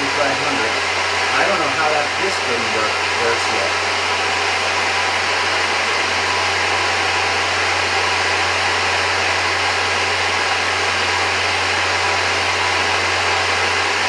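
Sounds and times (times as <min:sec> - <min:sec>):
electric air compressor running: 0:00.0 - 0:14.0.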